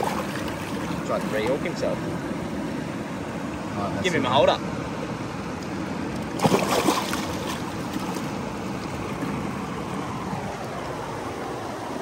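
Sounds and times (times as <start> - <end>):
fish splashing in water: 0.0 - 1.4, 6.2 - 9.4.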